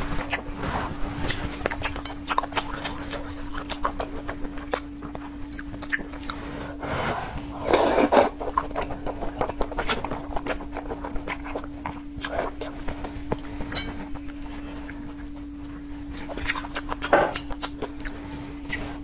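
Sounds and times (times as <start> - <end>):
faint steady hum: 0.0 - 19.0
mouth clicks and chewing: 1.2 - 6.4, 8.4 - 13.5, 14.1 - 18.8
slurping noodles: 6.3 - 9.4.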